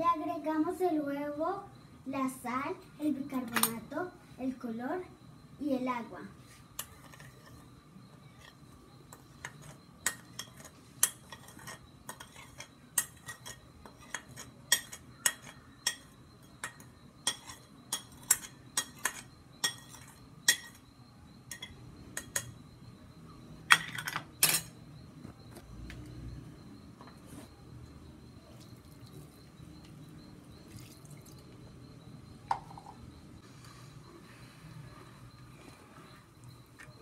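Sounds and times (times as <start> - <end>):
metal spoon scraping ceramic plate: 8.3 - 20.8
plate and spoon clattering: 9.4 - 20.8.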